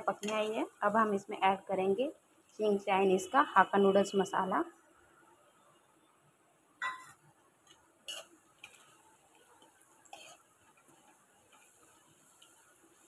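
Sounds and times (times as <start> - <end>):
metal utensil scraping a steel pan: 8.1 - 8.8.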